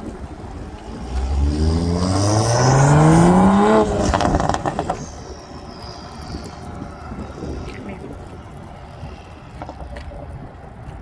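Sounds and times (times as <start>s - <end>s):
exhaust crackles: 0.0s - 11.0s
car engine accelerating hard: 0.8s - 7.8s.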